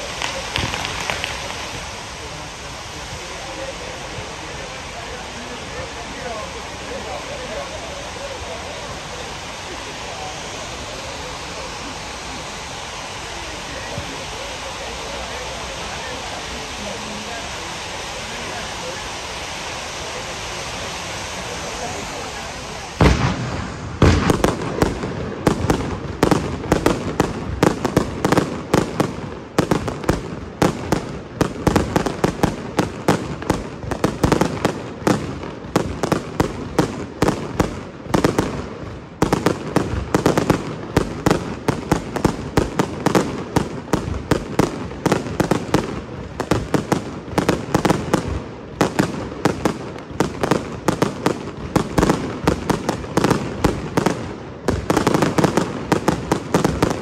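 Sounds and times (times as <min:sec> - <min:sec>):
firework shell bursts and bangs: 0:00.0 - 0:01.9, 0:23.0 - 0:57.0.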